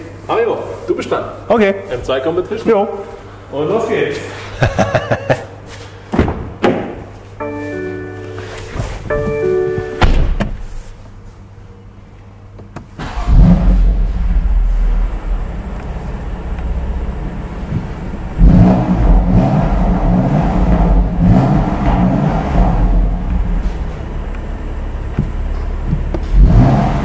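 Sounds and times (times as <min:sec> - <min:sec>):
car engine starting: 0:12.9 - 0:27.0
car engine idling: 0:13.0 - 0:27.0
car engine revving: 0:13.0 - 0:27.0.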